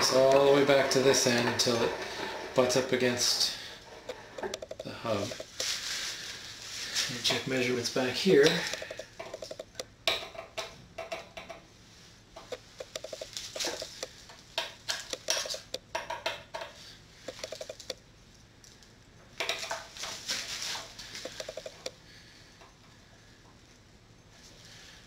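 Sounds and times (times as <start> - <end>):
metal tool clicking and scraping: 12.5 - 14.2, 14.9 - 15.8, 17.3 - 18.0
quick ticks: 12.5 - 14.2, 17.3 - 18.0, 21.2 - 22.0.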